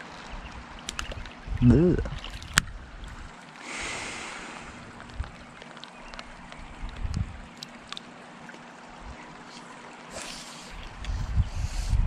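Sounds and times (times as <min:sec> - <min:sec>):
water splashing and trickling: 0:00.0 - 0:12.0
hiss of disturbed water: 0:03.6 - 0:05.0, 0:09.4 - 0:12.0.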